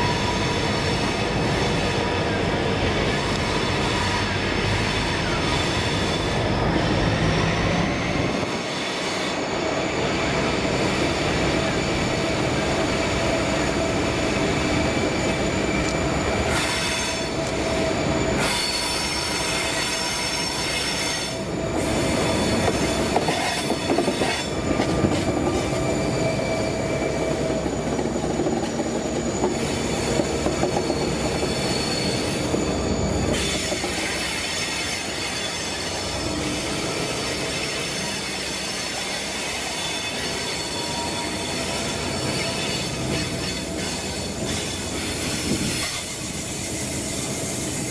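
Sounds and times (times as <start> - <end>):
freight train passing: 0.0 - 47.9
wheel squeal: 13.4 - 47.9.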